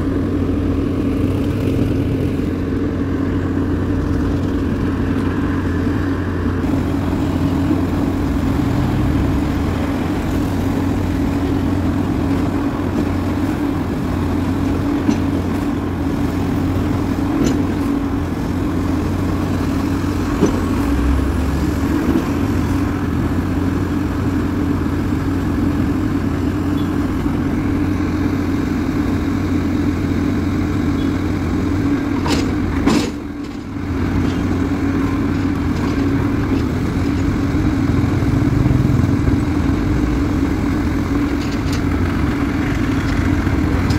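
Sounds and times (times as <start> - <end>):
diesel engine and hydraulics running: 0.0 - 43.9.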